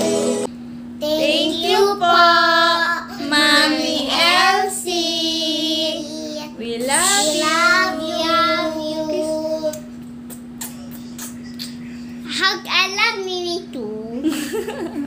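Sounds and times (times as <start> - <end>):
steady low hum: 0.0 - 15.0
child singing: 1.0 - 9.8.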